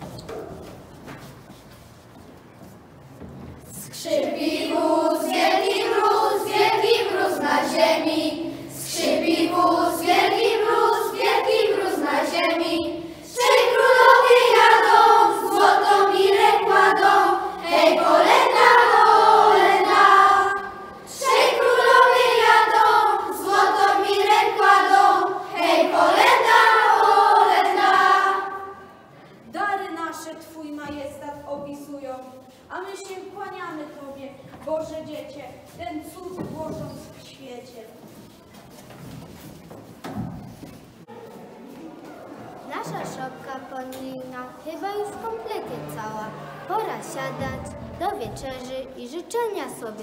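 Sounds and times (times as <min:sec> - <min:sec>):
children singing a carol: 0:03.8 - 0:29.2, 0:44.8 - 0:48.4.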